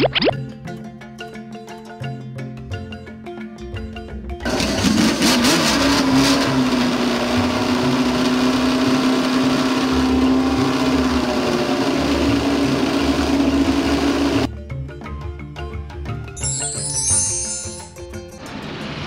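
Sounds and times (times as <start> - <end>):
car engine revving: 4.4 - 14.5.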